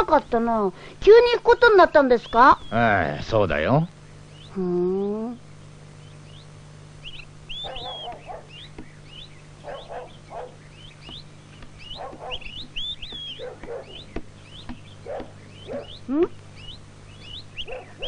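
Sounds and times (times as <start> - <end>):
small birds chirping: 0.0 - 18.0
dog barking: 7.6 - 8.6, 9.6 - 10.6, 11.9 - 12.5, 13.4 - 14.0, 15.0 - 16.0, 17.6 - 18.0.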